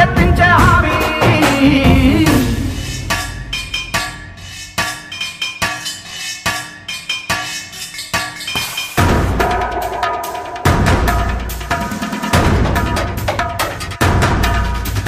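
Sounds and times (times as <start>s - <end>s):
chiming percussive strikes: 8.1s - 13.1s.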